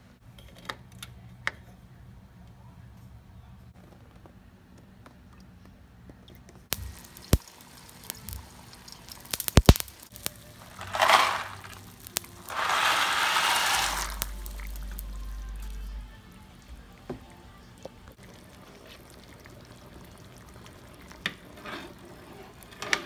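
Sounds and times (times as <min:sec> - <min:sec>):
water boiling: 0:06.7 - 0:15.9, 0:17.8 - 0:23.0
dry pasta poured into water: 0:07.0 - 0:15.0
crackling rushing burst: 0:09.3 - 0:15.6.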